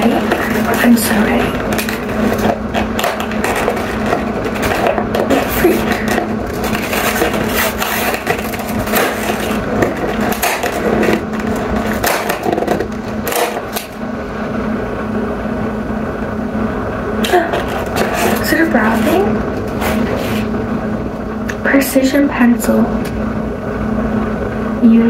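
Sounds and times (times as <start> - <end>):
cardboard scratching and tearing: 0.0 - 14.0, 17.3 - 20.5
steady low hum: 0.0 - 25.0.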